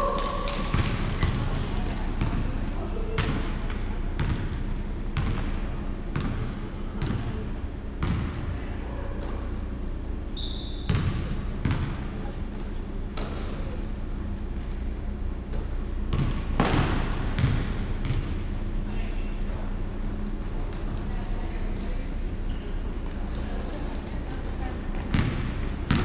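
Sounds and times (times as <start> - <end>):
basketball bouncing on wooden floor: 0.6 - 1.5, 4.2 - 4.6, 5.2 - 5.5, 6.2 - 7.3, 16.1 - 18.3.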